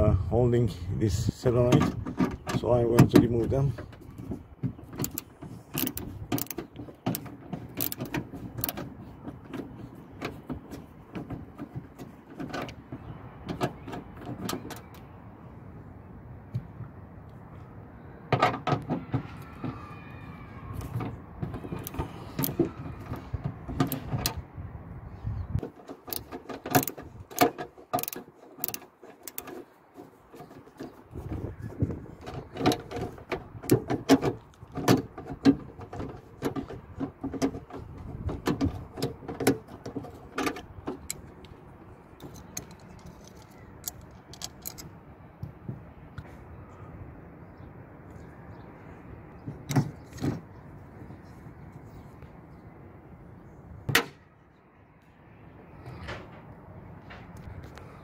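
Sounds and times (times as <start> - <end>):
metal latch being handled: 1.5 - 15.2, 20.8 - 24.4, 25.6 - 45.0
hand driver clicking on bolts: 4.8 - 12.8, 21.6 - 24.4, 25.6 - 29.6, 42.2 - 44.9.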